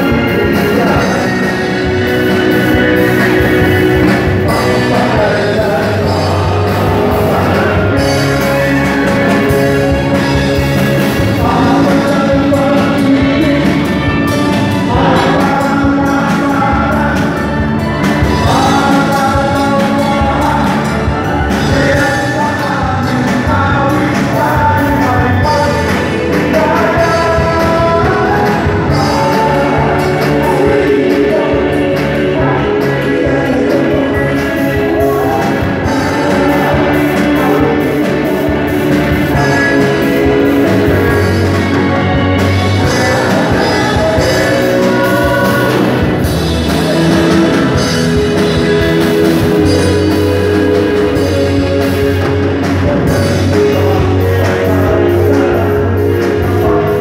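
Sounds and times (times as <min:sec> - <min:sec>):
live band playing: 0:00.0 - 0:57.0
men singing: 0:00.0 - 0:57.0.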